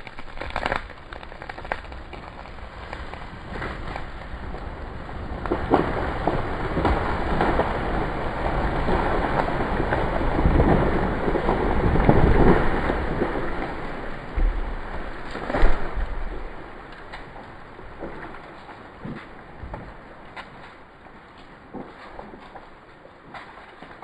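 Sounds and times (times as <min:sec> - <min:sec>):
sharp cracks: 0:00.0 - 0:04.6, 0:05.4 - 0:24.0
wind gusting over microphone: 0:03.3 - 0:16.8.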